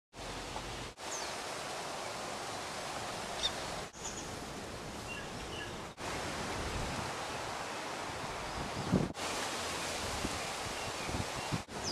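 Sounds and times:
outdoor background hiss: 0.1 - 11.9.

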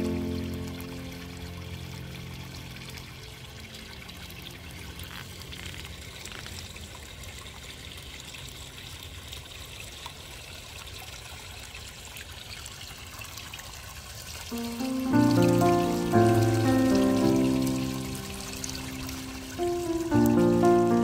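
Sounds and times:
fountain trickling and splashing: 0.0 - 21.0.

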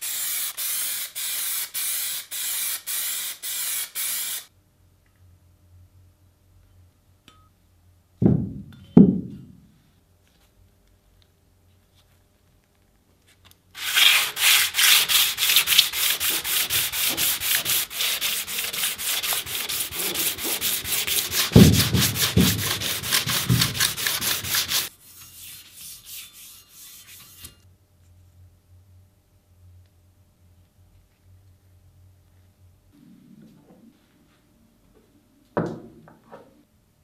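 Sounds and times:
sanding block thuds: 13.8 - 24.9
sandpaper scraping metal: 13.8 - 27.6.

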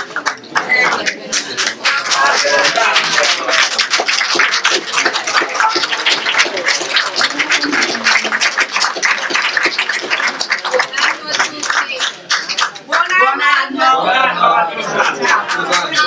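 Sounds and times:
people clapping: 0.0 - 13.7, 14.8 - 16.0
voices: 10.1 - 16.0.

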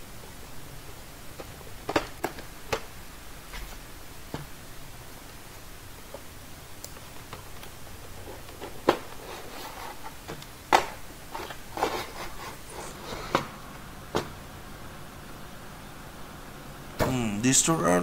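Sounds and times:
sharp plastic clicks and knocks: 1.4 - 2.9
plastic tray rubbing cardboard: 8.1 - 10.2, 11.3 - 13.3.

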